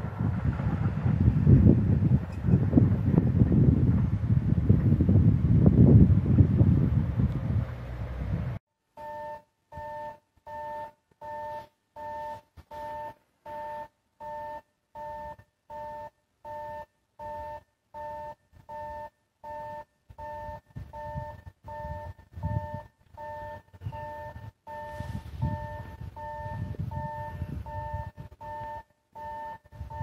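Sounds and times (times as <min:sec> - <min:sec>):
wind rumbling on microphone: 0:00.0 - 0:08.6, 0:20.1 - 0:28.8, 0:29.6 - 0:30.0
level crossing alarm dinging: 0:09.0 - 0:30.0.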